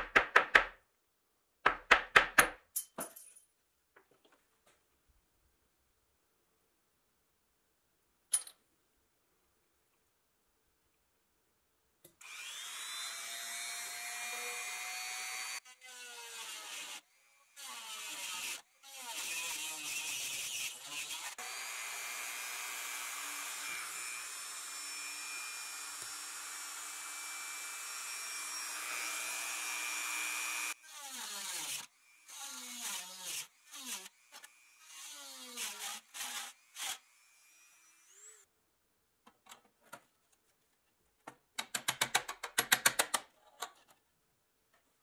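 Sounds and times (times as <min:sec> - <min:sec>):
rotary tool grinding steel: 0:27.8 - 0:38.5.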